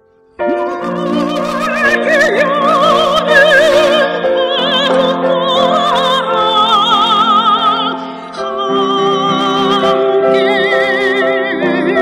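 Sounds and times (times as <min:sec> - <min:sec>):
instrumental accompaniment: 0:00.0 - 0:06.8
soprano singing operatically: 0:00.5 - 0:12.0.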